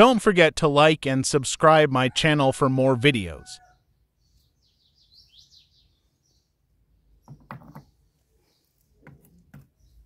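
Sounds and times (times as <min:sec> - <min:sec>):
faint bird chirps: 0:03.6 - 0:10.0
objects knocking on wooden tabletop: 0:07.2 - 0:07.9.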